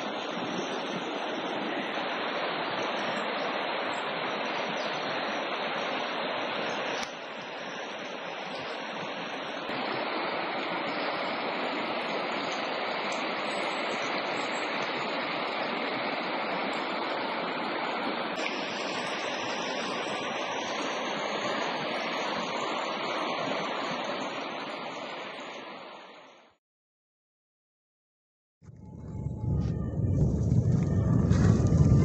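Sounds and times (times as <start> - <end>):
river water rushing: 0.0 - 26.4.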